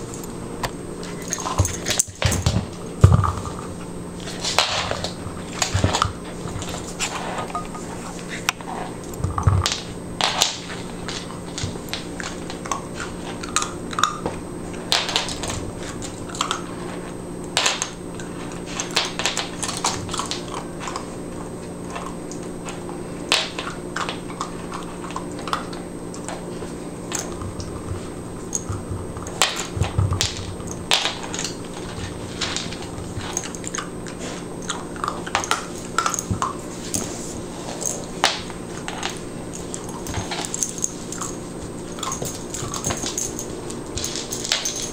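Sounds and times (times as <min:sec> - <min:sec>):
puppy chewing: 0:18.2 - 0:44.9.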